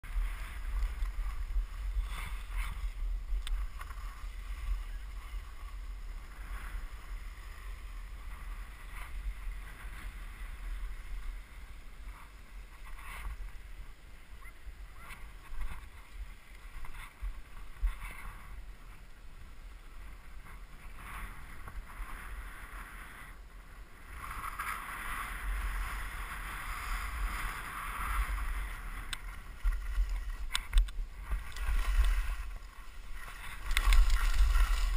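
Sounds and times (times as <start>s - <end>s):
skis scraping over snow: 0.0s - 34.9s
wind rumble on microphone: 0.0s - 34.9s.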